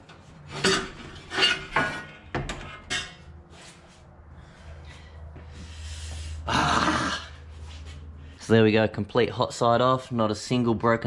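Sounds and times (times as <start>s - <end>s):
metal parts clanking and clinking: 0.5s - 3.3s.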